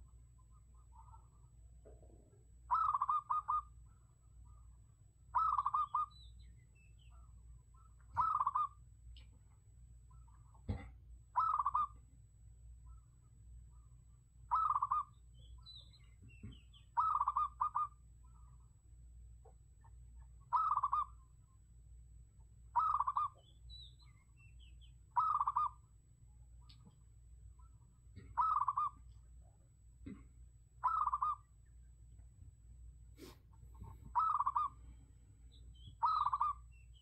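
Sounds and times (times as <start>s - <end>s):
dove cooing: 0.0s - 6.2s, 7.1s - 8.8s, 10.1s - 12.0s, 14.5s - 15.8s, 16.4s - 18.5s, 20.4s - 21.3s, 22.7s - 23.5s, 25.1s - 25.9s, 27.6s - 29.1s, 30.8s - 31.5s, 33.2s - 35.0s, 35.8s - 36.7s
faint high bird chirps: 0.0s - 9.4s, 10.0s - 18.8s, 19.4s - 21.7s, 22.4s - 29.7s, 30.8s - 32.2s, 33.2s - 37.0s.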